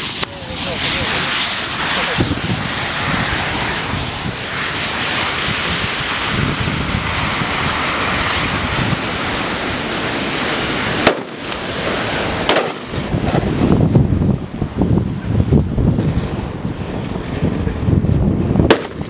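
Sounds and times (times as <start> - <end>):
sharp crack: 0.0 - 13.8, 18.4 - 19.0
rush of burning flame: 0.0 - 19.0.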